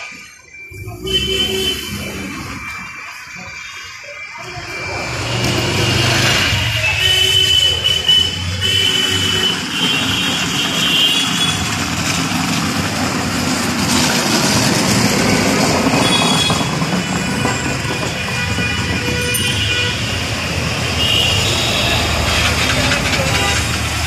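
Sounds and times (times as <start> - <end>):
auto-rickshaw engine running: 0.0 - 24.0
passing cars: 0.0 - 24.0
road noise: 0.0 - 24.0.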